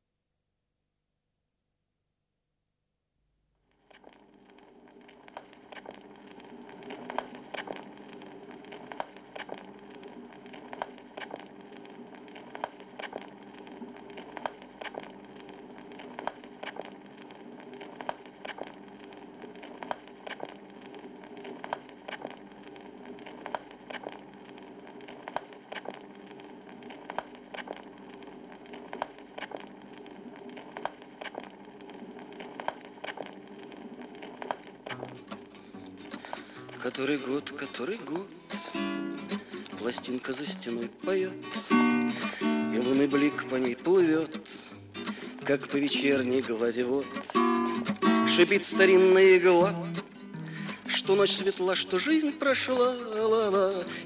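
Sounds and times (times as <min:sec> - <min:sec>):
faint steady hum: 0:00.0 - 0:54.0
vinyl hiss and crackle: 0:03.2 - 0:54.0
vinyl record pops: 0:03.7 - 0:54.0.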